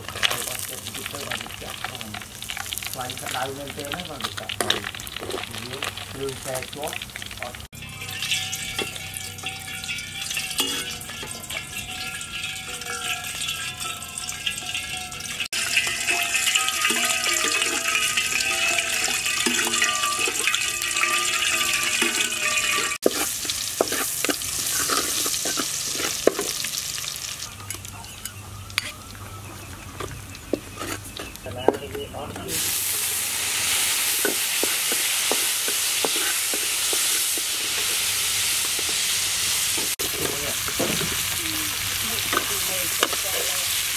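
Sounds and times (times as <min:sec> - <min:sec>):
oil sizzling in a wok: 0:00.0 - 0:31.5, 0:32.5 - 0:43.9
metal spatula scraping and tapping: 0:07.9 - 0:27.1, 0:28.2 - 0:29.0, 0:30.0 - 0:32.6, 0:34.2 - 0:39.1, 0:42.3 - 0:43.6.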